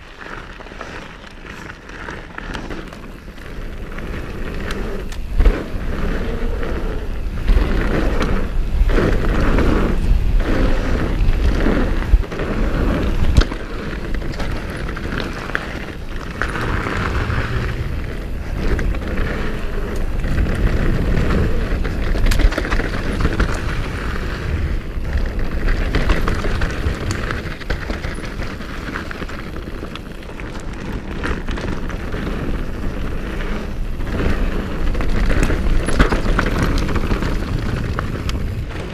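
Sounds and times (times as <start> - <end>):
bike rattling over bumps: 0.0 - 38.9
bike tyres rolling on gravel: 0.0 - 38.9
wind on microphone: 0.0 - 38.9.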